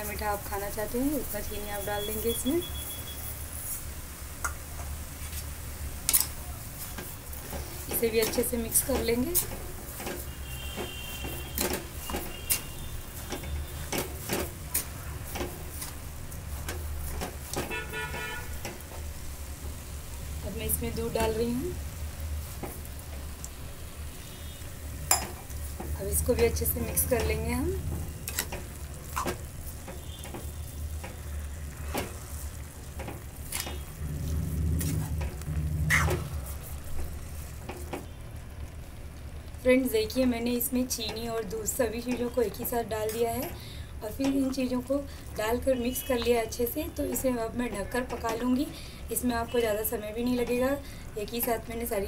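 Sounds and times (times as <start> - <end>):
mixture sizzling softly: 0.0 - 52.0
metal spoon scraping pan: 25.1 - 31.2
low hum: 33.8 - 37.6.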